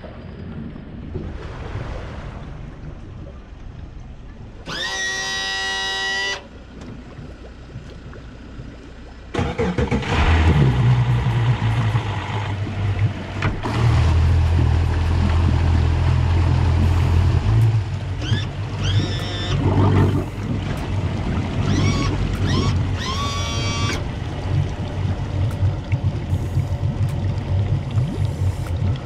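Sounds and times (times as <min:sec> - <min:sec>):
outboard motor running: 0:04.6 - 0:29.0
electronic tone: 0:04.7 - 0:06.5, 0:18.2 - 0:20.2, 0:21.6 - 0:24.0.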